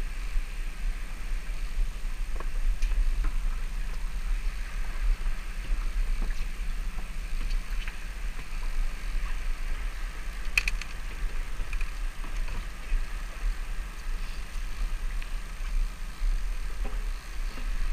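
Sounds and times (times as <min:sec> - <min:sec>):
wind buffeting microphone: 0:00.0 - 0:17.9
clatter of clicks: 0:10.5 - 0:11.0.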